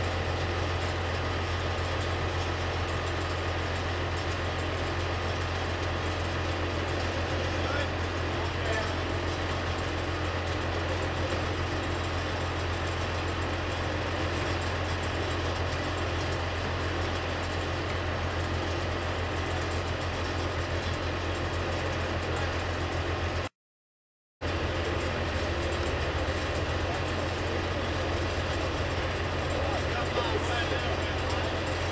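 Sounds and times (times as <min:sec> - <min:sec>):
heavy diesel engine running: 0:00.0 - 0:23.5, 0:24.4 - 0:31.9.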